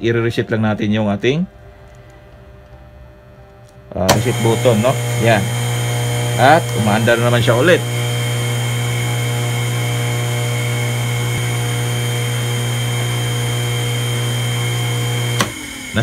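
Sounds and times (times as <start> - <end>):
electric motor humming: 3.9 - 16.0.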